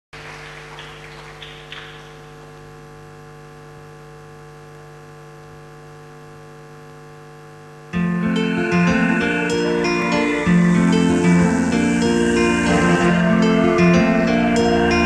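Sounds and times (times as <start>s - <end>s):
electrical hum: 0.2s - 15.0s
electronic tones: 7.9s - 15.0s
loud music: 8.0s - 15.0s.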